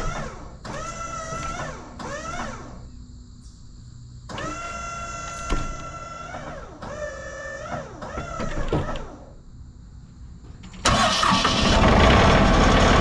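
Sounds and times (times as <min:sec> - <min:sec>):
hydraulic system whining: 0:04.3 - 0:09.4, 0:10.5 - 0:13.0
engine running: 0:10.8 - 0:13.0.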